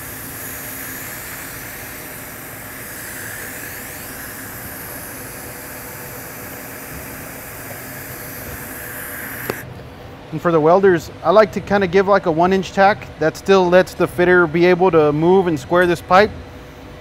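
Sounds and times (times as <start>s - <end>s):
welding arc hissing: 0.0s - 9.7s.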